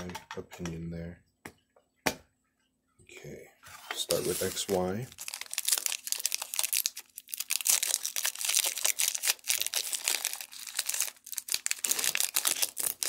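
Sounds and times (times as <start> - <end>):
foil wrapper crinkling and tearing: 4.1 - 13.0.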